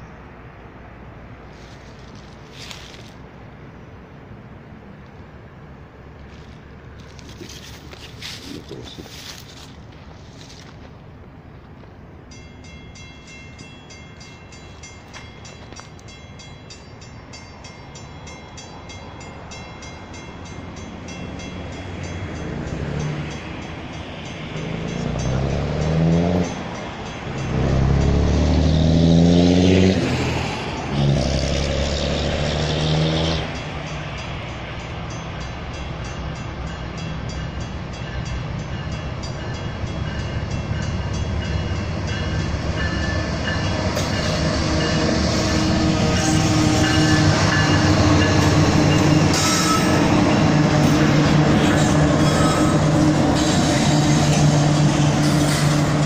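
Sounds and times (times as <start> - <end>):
train engine and wheels rumble: 0.0 - 56.0
train air horn blasts: 44.2 - 56.0.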